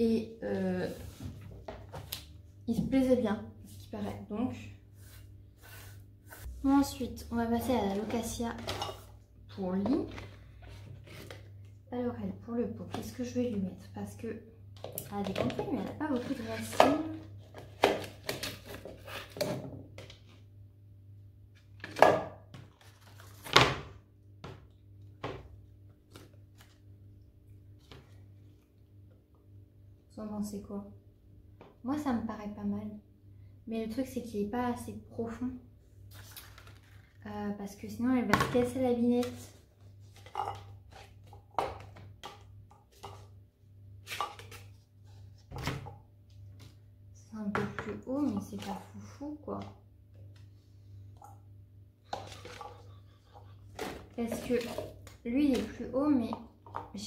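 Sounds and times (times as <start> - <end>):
faint steady hum: 22.5 - 57.0
plastic pots knocking and scraping: 40.1 - 43.3, 52.1 - 57.0.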